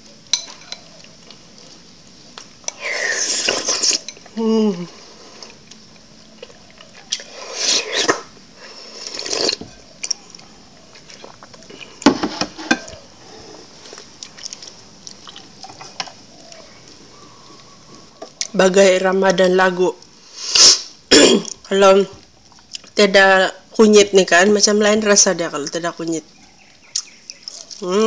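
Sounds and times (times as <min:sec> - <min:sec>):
wet slurping: 0:02.7 - 0:04.1, 0:07.2 - 0:09.6.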